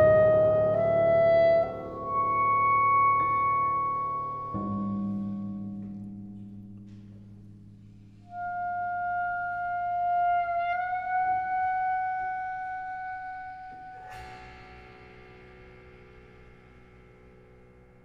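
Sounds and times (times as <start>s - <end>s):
clarinet long held note: 0.0s - 5.3s, 8.2s - 14.5s.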